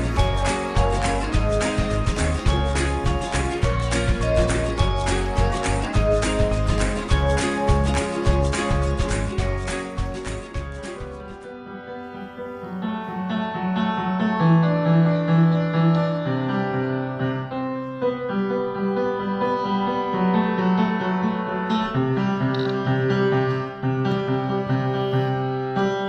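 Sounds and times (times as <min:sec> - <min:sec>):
slow solo piano piece: 0:11.1 - 0:26.0.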